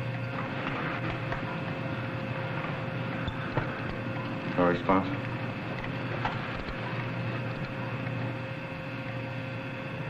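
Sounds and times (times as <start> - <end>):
breathing machine hum and hiss: 0.0 - 10.0.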